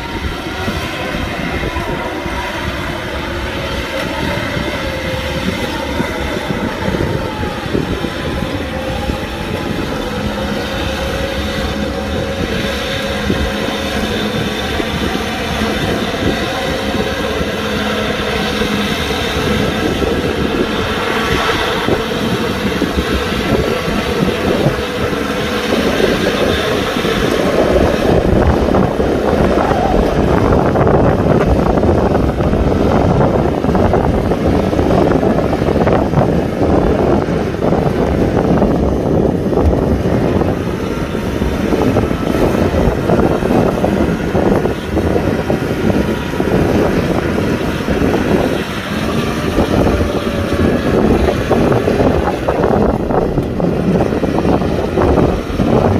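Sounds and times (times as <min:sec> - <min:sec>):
tractor diesel engine running: 0:00.0 - 0:55.9.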